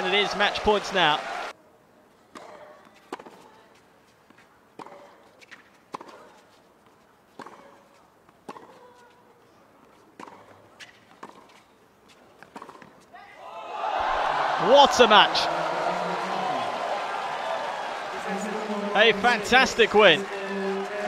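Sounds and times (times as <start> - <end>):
tennis ball bouncing on court: 2.3 - 3.5, 4.3 - 6.4, 7.4 - 9.1, 10.2 - 13.0
tennis ball struck by rackets: 4.8 - 6.4, 7.4 - 7.8, 8.4 - 8.8, 10.2 - 11.5, 12.4 - 13.0.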